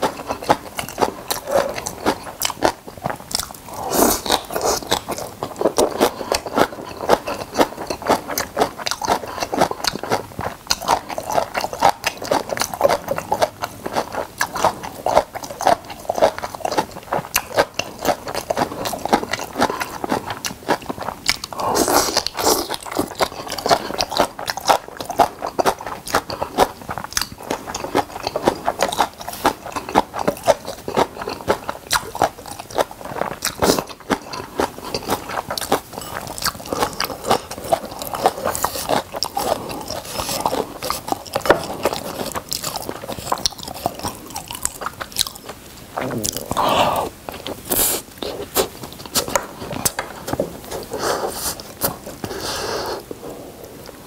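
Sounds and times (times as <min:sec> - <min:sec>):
person chewing food: 0:00.0 - 0:54.0
wet mouth clicks: 0:46.0 - 0:50.0.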